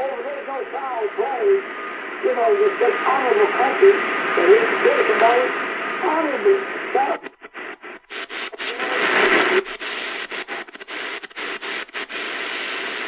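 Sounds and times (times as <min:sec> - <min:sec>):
radio static hiss: 0:00.0 - 0:13.0
faint radio voice: 0:02.2 - 0:07.3, 0:08.5 - 0:09.8.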